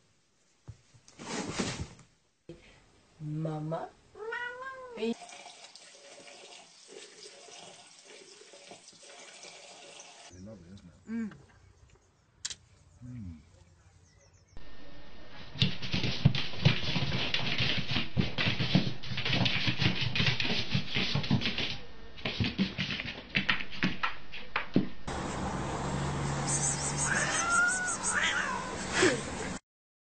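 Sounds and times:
cat meowing: 0:04.2 - 0:05.1, 0:27.0 - 0:28.8.

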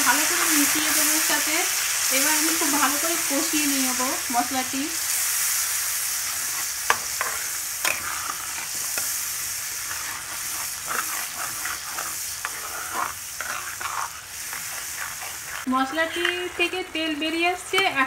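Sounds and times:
paste sizzling in hot oil: 0:00.0 - 0:18.0
metal spatula scraping pan: 0:06.3 - 0:18.0.

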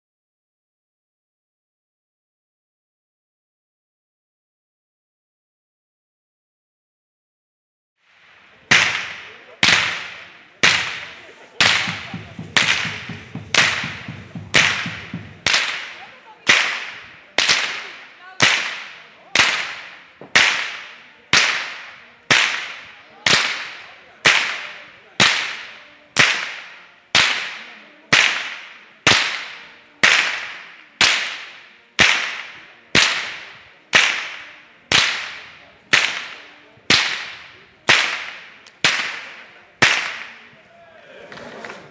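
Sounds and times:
whip cracks: 0:08.0 - 0:40.5.

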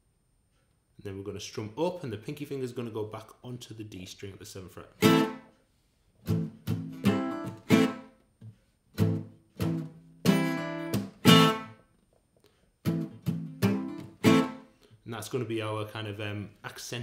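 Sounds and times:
acoustic guitar strumming: 0:05.0 - 0:05.5, 0:06.2 - 0:08.2, 0:09.0 - 0:11.9, 0:12.8 - 0:14.8.

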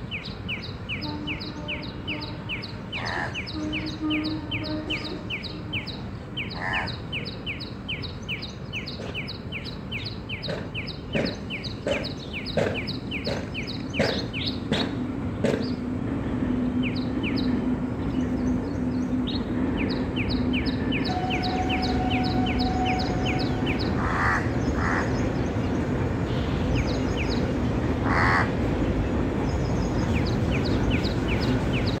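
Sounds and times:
small birds twittering: 0:00.0 - 0:32.0
crows cawing: 0:24.0 - 0:25.1, 0:28.0 - 0:28.5.

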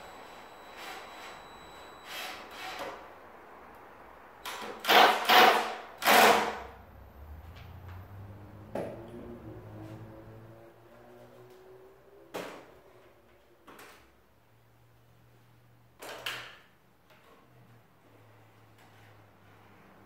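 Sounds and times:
drill driving screws into wood: 0:02.0 - 0:03.0, 0:04.4 - 0:06.7.

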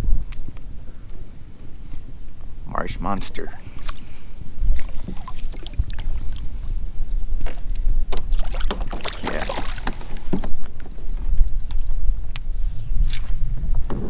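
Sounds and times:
low wind rumble: 0:00.0 - 0:14.0
fish splashing at surface: 0:08.3 - 0:10.1.

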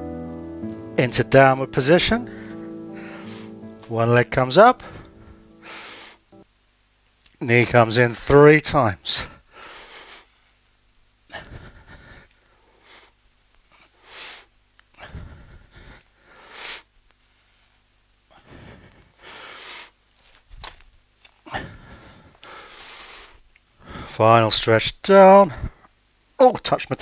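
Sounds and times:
man breathing heavily: 0:02.3 - 0:03.9, 0:04.7 - 0:06.4, 0:09.2 - 0:10.4, 0:11.3 - 0:13.2, 0:13.8 - 0:16.9, 0:18.3 - 0:20.0, 0:21.4 - 0:24.2.

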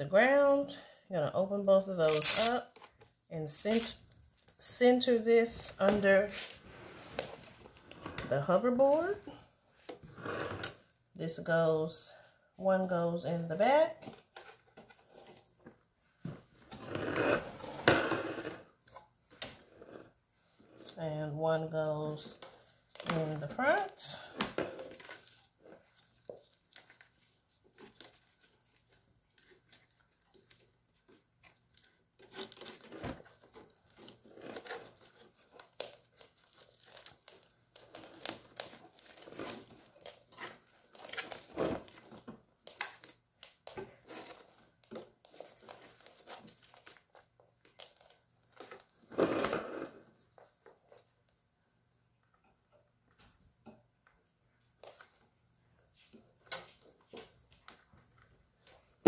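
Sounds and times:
velcro straps ripping: 0:02.0 - 0:02.6, 0:03.7 - 0:04.0.

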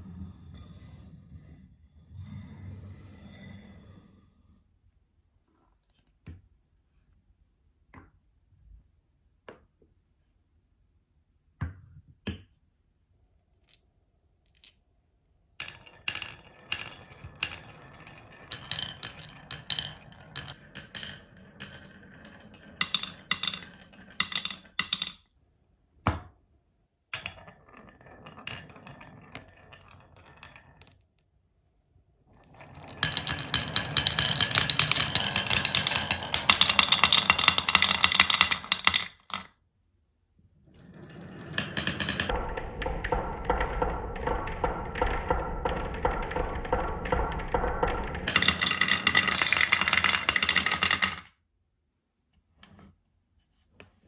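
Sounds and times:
marbles rolling and clicking: 0:14.5 - 0:14.8, 0:15.6 - 0:25.3, 0:27.2 - 0:31.2, 0:32.4 - 0:39.6, 0:40.7 - 0:51.4
marbles rattling and clinking together: 0:15.6 - 0:25.2, 0:32.6 - 0:39.5, 0:40.8 - 0:51.3.

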